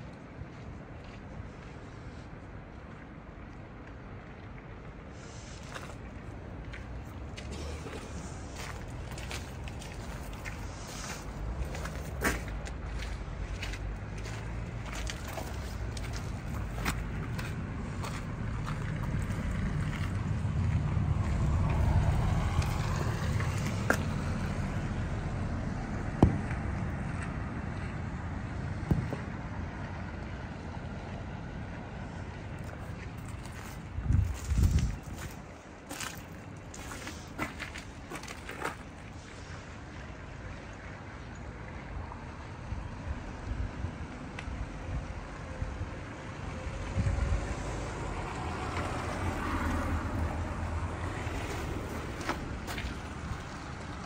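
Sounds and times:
low rumble of traffic: 0.0 - 54.0
vehicle passing: 6.8 - 41.0, 42.9 - 54.0
wind on the microphone: 33.8 - 35.5, 46.7 - 47.6.

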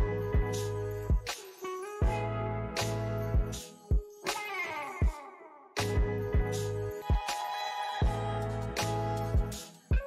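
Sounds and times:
bass line and held chords: 0.0 - 1.3, 2.0 - 3.6, 5.8 - 7.0, 8.0 - 9.6.

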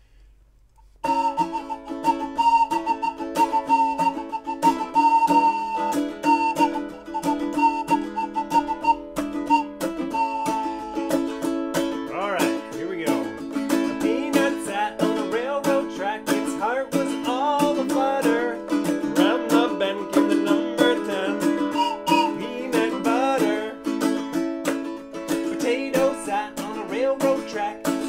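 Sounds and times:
ukulele strumming: 0.8 - 28.0
man singing: 12.1 - 24.2, 25.3 - 28.0.

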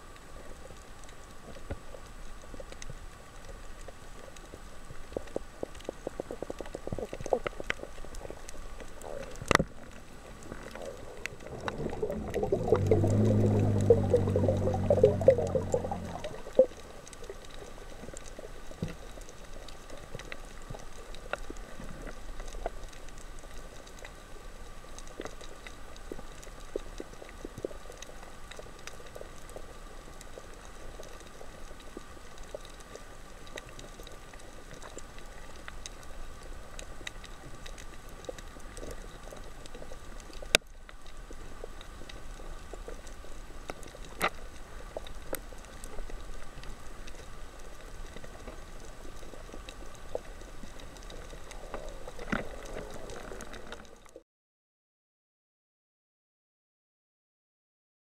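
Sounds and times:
crackle of fine underwater clicks: 0.0 - 54.2
faint steady hum: 0.0 - 54.2.

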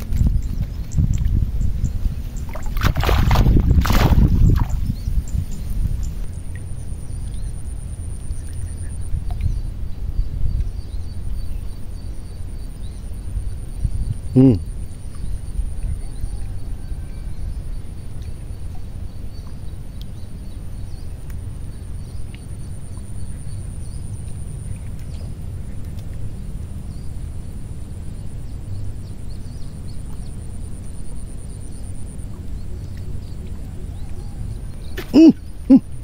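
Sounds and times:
faint chirps: 14.3 - 14.7, 32.9 - 36.0.

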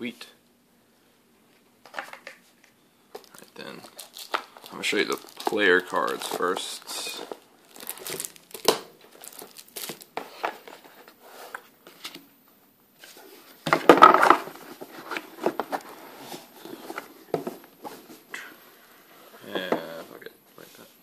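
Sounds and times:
cardboard and cards rustling: 1.8 - 12.2, 13.0 - 18.3.

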